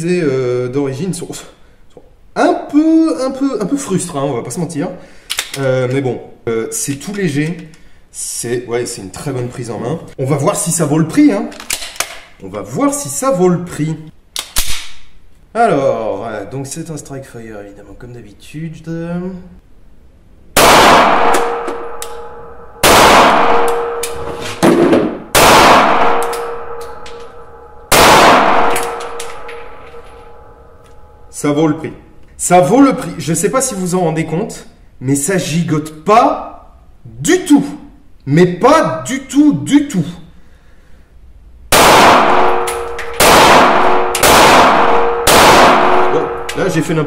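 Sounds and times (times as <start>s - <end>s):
pistol shots echoing indoors: 20.6s - 31.3s, 41.7s - 47.0s.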